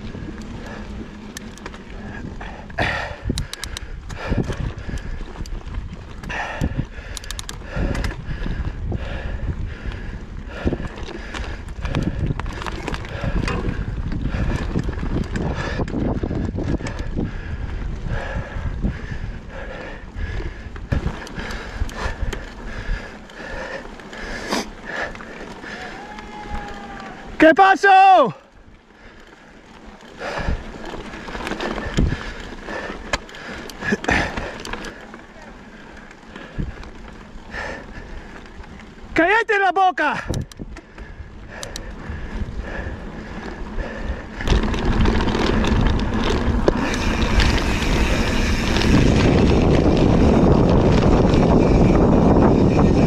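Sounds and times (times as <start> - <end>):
bike clicking and rattling: 0.0 - 53.0
tyres rumbling on dirt: 28.8 - 53.0.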